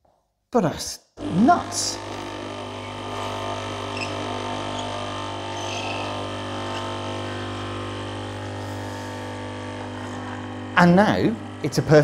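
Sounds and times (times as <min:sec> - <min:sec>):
coffee machine pump humming: 0:01.2 - 0:12.0
coffee pouring into cup: 0:02.0 - 0:11.6.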